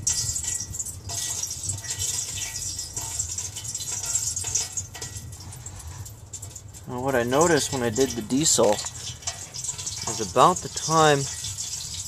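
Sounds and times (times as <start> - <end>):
kerosene boiling with crackle: 0.0 - 12.0.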